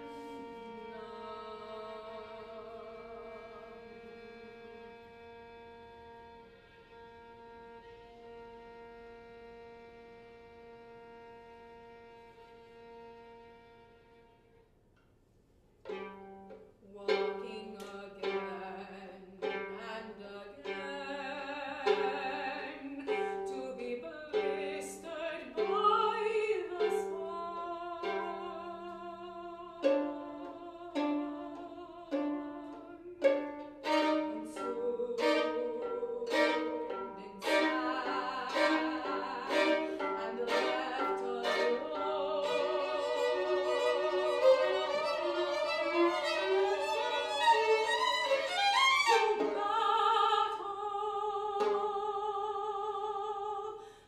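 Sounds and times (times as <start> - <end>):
woman singing with vibrato: 0.0 - 4.3, 16.8 - 54.0
violin short notes: 29.8 - 49.8.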